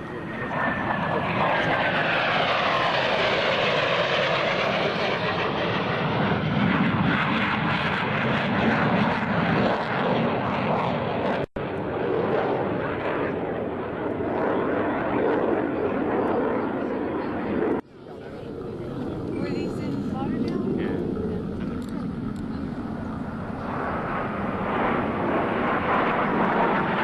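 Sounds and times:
high jet whine: 0:00.0 - 0:15.4, 0:17.6 - 0:27.0
jet flying past: 0:00.0 - 0:27.0
loud jet rumble: 0:17.6 - 0:27.0.

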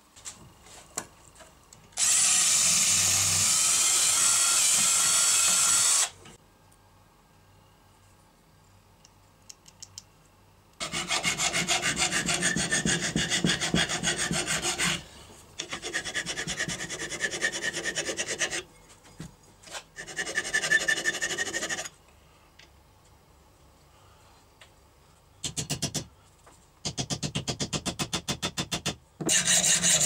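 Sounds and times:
hand file rasping on steel: 0:10.8 - 0:15.0, 0:15.6 - 0:18.6, 0:20.0 - 0:21.9, 0:29.3 - 0:30.0.

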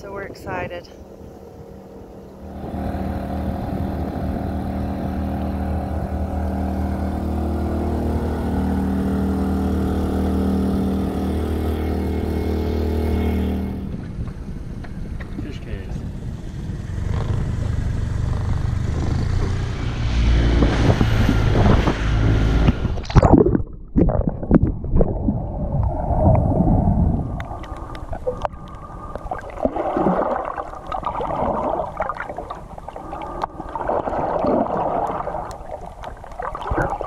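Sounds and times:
small boat engine rumble: 0:00.0 - 0:37.0
wind: 0:00.0 - 0:37.0
muffled underwater sound: 0:23.1 - 0:37.0
small crackles: 0:27.3 - 0:29.8.

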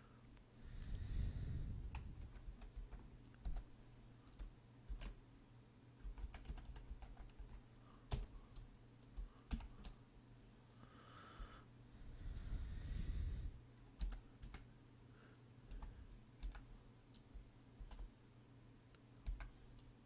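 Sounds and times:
low steady hum: 0:00.0 - 0:20.0
keyboard keystrokes: 0:04.3 - 0:05.2, 0:06.0 - 0:10.0, 0:14.0 - 0:14.7, 0:15.7 - 0:18.1, 0:19.2 - 0:19.9.

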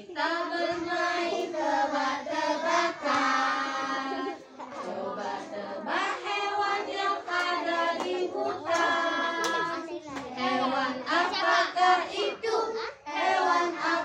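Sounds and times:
children singing together: 0:00.0 - 0:14.0.

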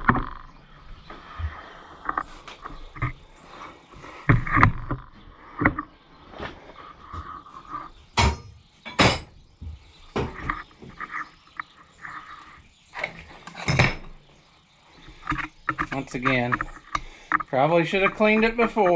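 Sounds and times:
metal clanks and knocks: 0:08.2 - 0:09.4, 0:13.0 - 0:14.2.

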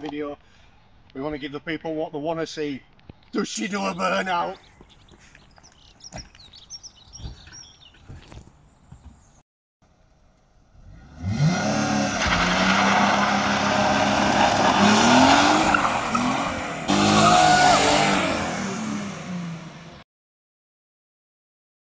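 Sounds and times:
car engine revving hard: 0:10.8 - 0:20.0.

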